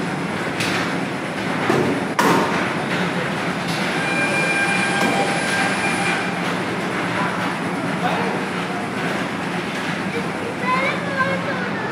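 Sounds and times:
wheels rumbling on rails: 0.0s - 11.9s.

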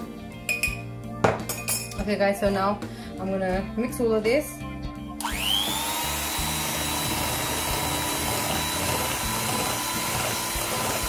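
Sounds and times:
electric hand mixer whining: 5.2s - 11.0s.

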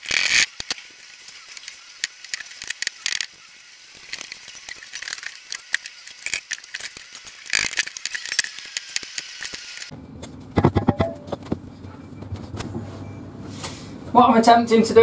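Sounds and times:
loud knocks: 10.5s - 11.6s.

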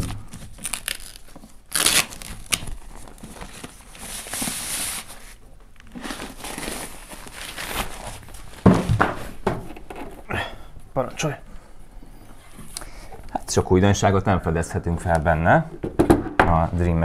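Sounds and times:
plastic wrap crinkling and rustling: 0.0s - 10.2s.

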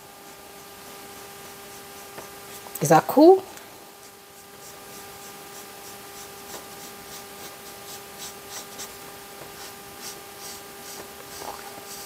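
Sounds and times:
marker pen scratching on paper: 0.2s - 2.7s, 4.0s - 12.0s.

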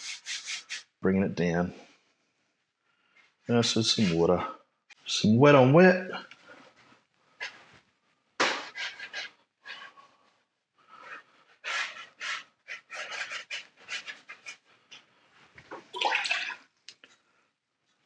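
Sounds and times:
paintbrush swishing on wet paper: 0.0s - 0.9s, 11.6s - 14.7s.

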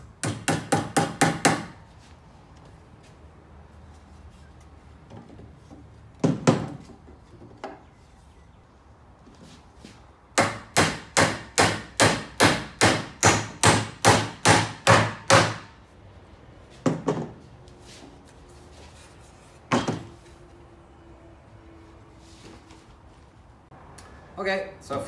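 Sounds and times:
hammer driving nails into wood: 0.2s - 1.8s, 10.4s - 15.7s.

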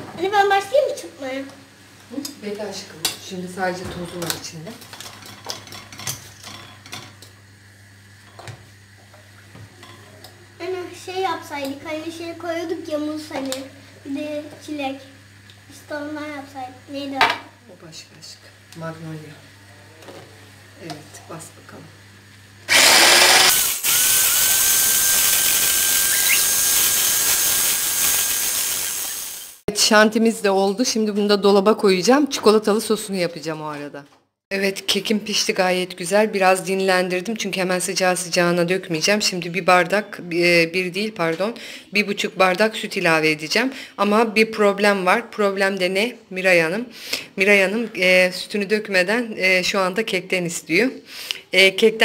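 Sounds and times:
electric hand mixer whining: 22.7s - 29.6s.

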